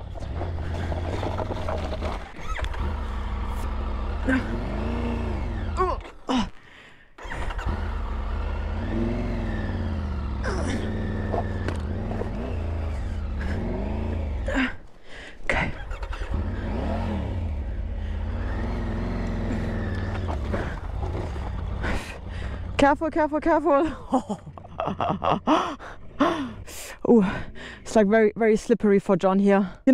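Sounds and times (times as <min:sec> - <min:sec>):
motorcycle engine revving: 0:00.0 - 0:06.4, 0:07.2 - 0:14.8, 0:15.5 - 0:26.7.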